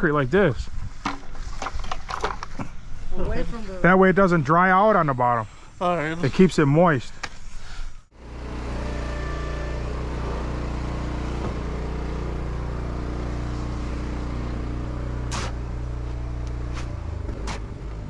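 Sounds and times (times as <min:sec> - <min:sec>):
engine idling: 0:08.1 - 0:18.0.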